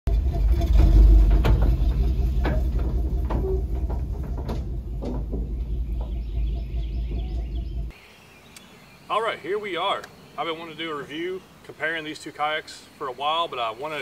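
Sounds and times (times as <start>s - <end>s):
truck engine rumble: 0.0s - 7.9s
trailer frame clanking and rattling: 0.1s - 7.9s.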